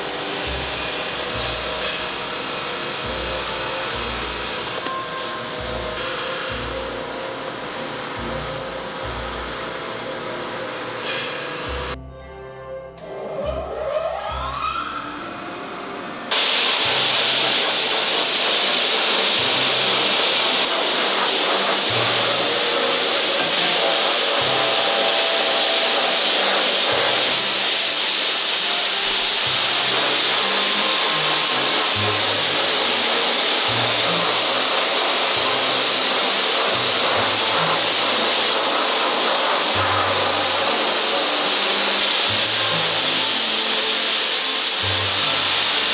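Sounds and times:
sandblasting machine hiss: 0.0s - 12.0s, 16.3s - 45.9s
rising machine whine: 12.9s - 45.9s.

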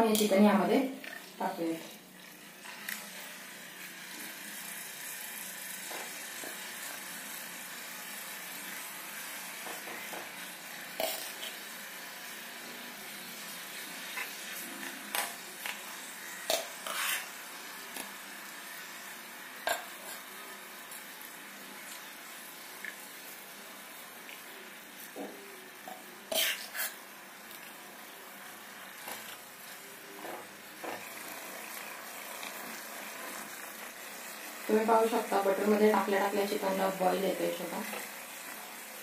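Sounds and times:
chicken sizzling in a pan: 0.0s - 39.0s.

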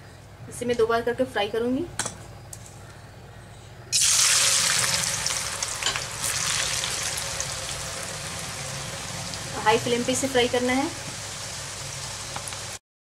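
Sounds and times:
oil bubbling: 3.9s - 12.8s
potatoes sizzling in hot oil: 3.9s - 12.8s.

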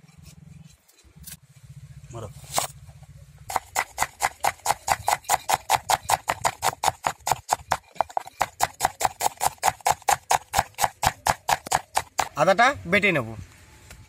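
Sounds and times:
knife chopping on wooden board: 3.5s - 12.4s.

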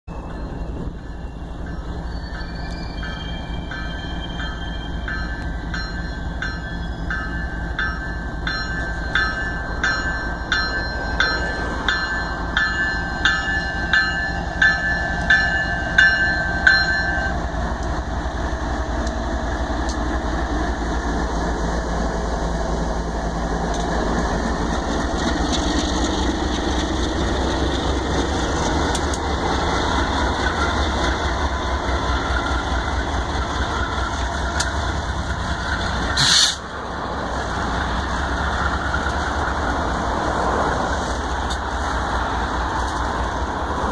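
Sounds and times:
locomotive bell ringing: 0.1s - 17.8s
diesel locomotive engines rumbling: 0.1s - 43.9s
train wheels rumbling: 0.1s - 43.9s.

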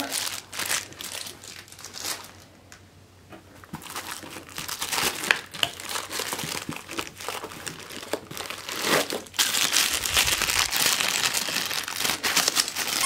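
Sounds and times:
plastic bag crinkling: 0.0s - 2.5s, 3.6s - 13.0s.

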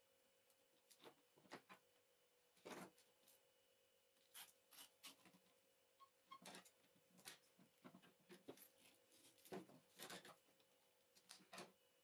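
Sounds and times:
hands rustling wires: 6.5s - 11.8s.

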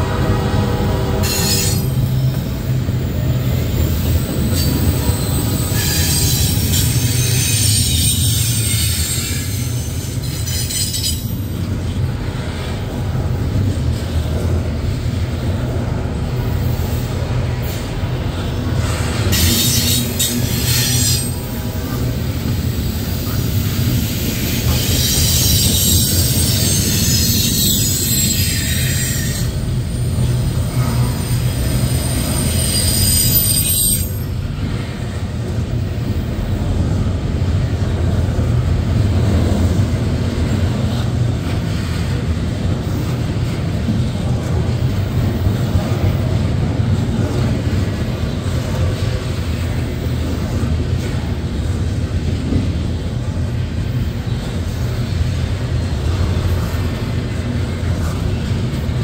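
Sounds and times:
train cars rumbling past: 0.0s - 59.0s
train wheels squealing: 1.2s - 2.8s, 3.8s - 11.6s, 17.6s - 35.2s.

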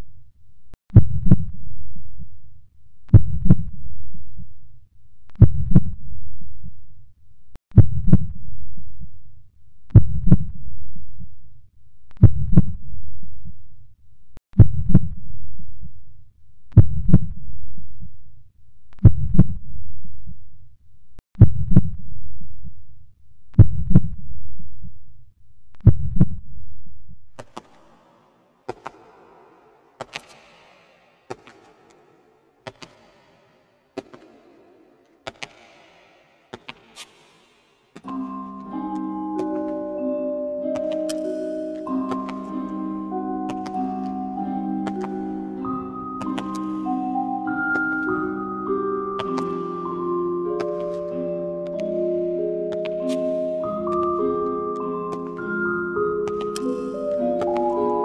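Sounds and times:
heartbeat thumps: 3.1s - 3.8s, 5.4s - 6.0s, 7.7s - 8.4s, 9.9s - 11.4s, 12.2s - 12.8s, 23.6s - 24.2s, 25.8s - 26.4s.

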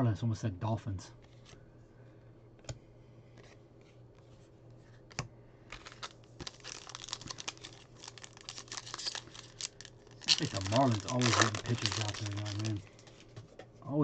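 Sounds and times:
foil wrapper crinkling and tearing: 5.7s - 13.3s.

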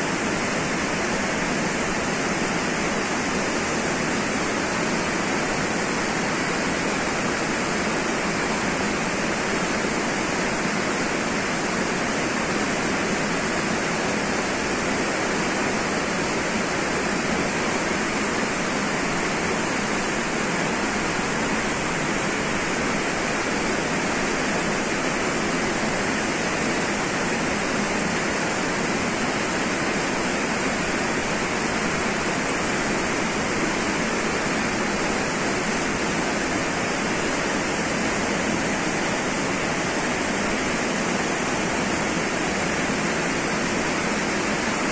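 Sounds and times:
waterfall rushing: 16.1s - 44.9s.

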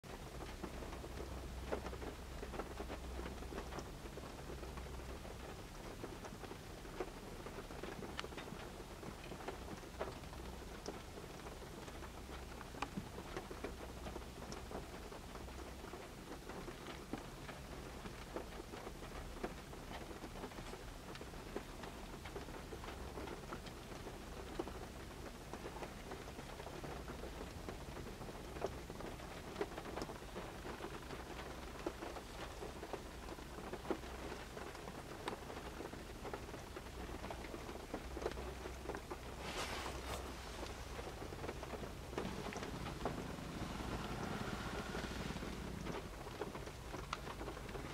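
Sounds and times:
rain pattering on car roof: 0.0s - 47.9s
low hum: 38.9s - 47.4s.

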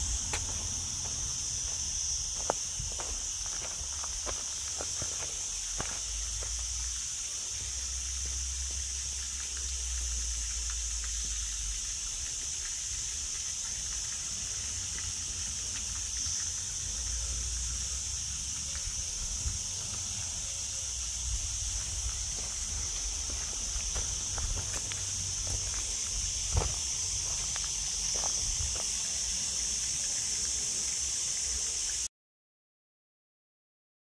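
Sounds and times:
insects buzzing: 0.0s - 32.1s
wind rumble on microphone: 28.4s - 28.8s.

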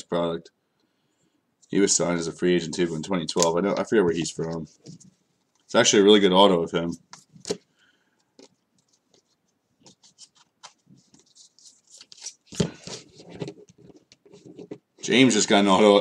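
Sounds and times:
cards laid on a table: 7.0s - 14.8s
paper cards flipped by hand: 8.4s - 14.4s.

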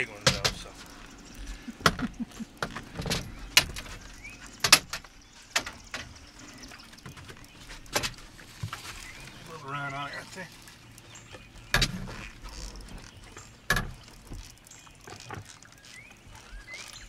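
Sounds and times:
sharp knocks and clatters: 0.2s - 1.0s, 1.7s - 6.2s.

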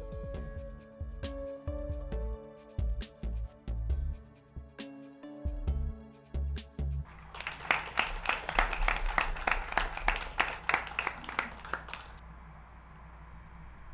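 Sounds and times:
people applauding: 7.1s - 12.2s.

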